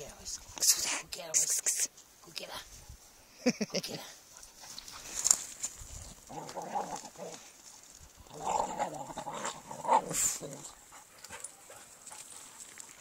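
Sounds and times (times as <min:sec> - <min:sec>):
dogs growling: 0:06.2 - 0:07.5, 0:08.2 - 0:12.2.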